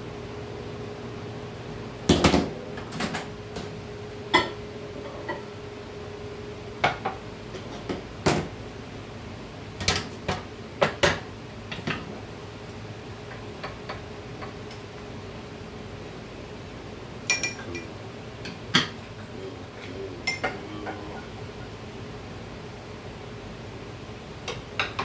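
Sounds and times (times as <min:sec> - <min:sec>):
glass cups clinking on wood: 0:17.3 - 0:17.9.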